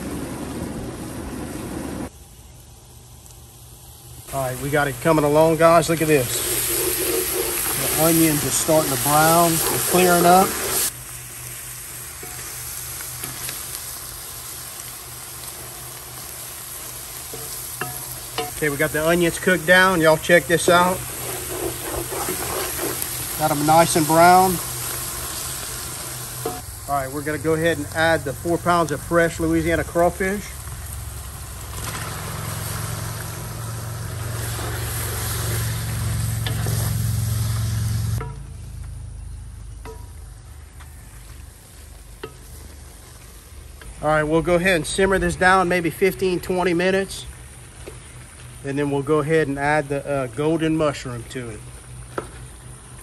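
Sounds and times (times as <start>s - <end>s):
steady low hum: 0.0s - 46.6s
vegetables sizzling in butter: 1.8s - 53.0s
wooden spoon stirring: 6.2s - 10.9s, 17.3s - 24.8s.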